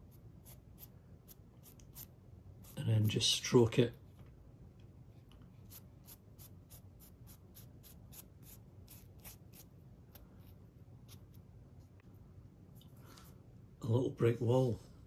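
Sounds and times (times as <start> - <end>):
paintbrush scratching on foam: 0.0 - 3.4, 5.5 - 11.4.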